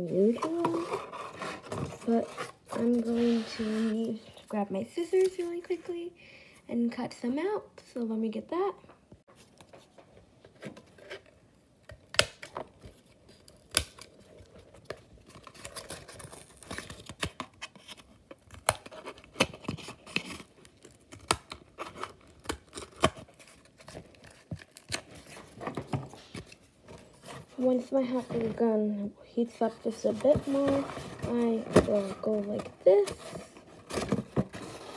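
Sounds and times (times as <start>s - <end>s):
cardboard rustling: 0.0s - 4.3s, 12.6s - 34.9s
scissors cutting cardboard: 15.4s - 25.8s.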